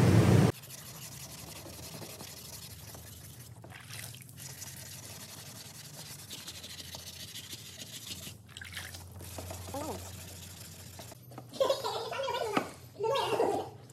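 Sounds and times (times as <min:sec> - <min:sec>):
sandpaper rubbing: 0:00.5 - 0:03.6, 0:04.4 - 0:08.4, 0:09.2 - 0:11.2.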